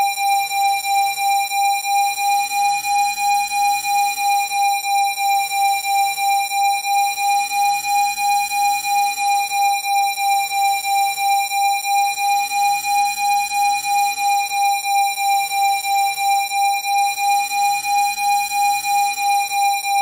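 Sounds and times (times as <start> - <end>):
pulsing electronic test tone: 17.2 - 20.0.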